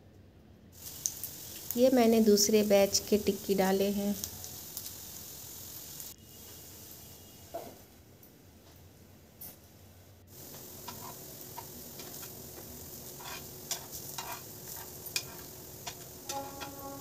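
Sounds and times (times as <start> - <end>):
food sizzling in oil: 0.8 - 7.5, 10.3 - 17.0
metal spatula clicking on pan: 13.2 - 16.7.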